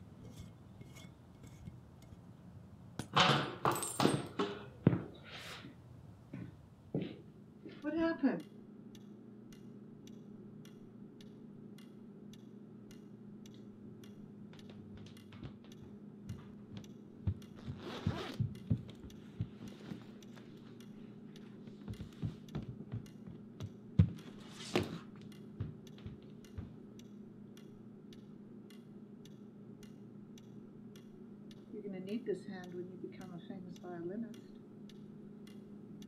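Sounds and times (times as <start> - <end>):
low room hum: 0.0 - 36.0
knocks of handling things: 3.0 - 5.2
clock ticking: 7.8 - 17.8, 18.4 - 24.3, 25.2 - 36.0.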